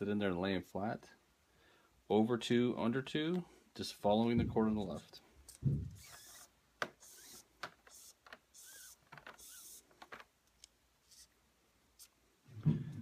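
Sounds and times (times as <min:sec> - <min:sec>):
soft low thump: 0:04.3 - 0:04.8, 0:05.6 - 0:06.0
cord sliding against cord: 0:06.0 - 0:10.3, 0:11.0 - 0:11.4.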